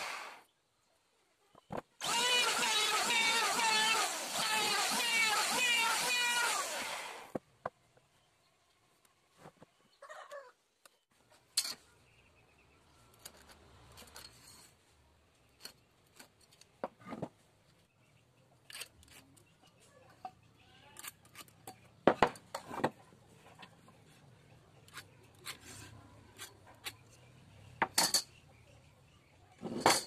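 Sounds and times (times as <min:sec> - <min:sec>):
metal tools tapping on wooden boards: 0:27.8 - 0:28.4.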